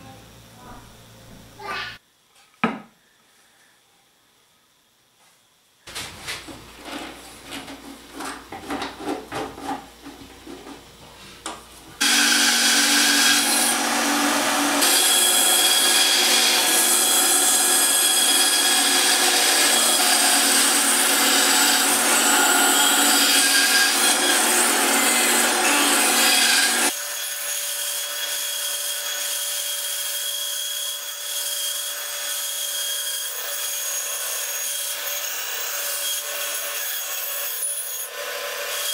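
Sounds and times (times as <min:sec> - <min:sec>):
band saw cutting wood: 0:12.0 - 0:38.9.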